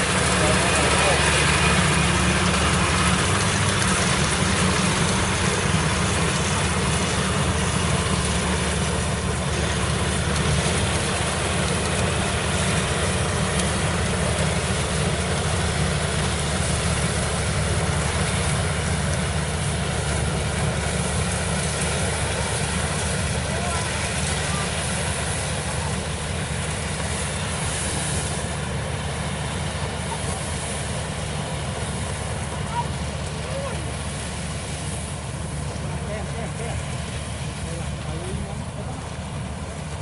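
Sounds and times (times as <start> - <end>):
cutter and threshing drum clatter: 0.0 - 40.0
diesel engine drone: 0.0 - 40.0.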